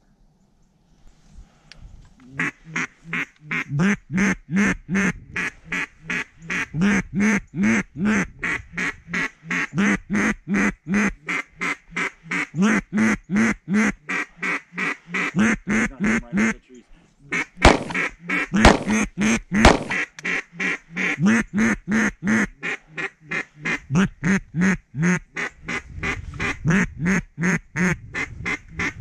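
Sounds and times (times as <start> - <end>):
duck quacking: 2.3 - 29.0.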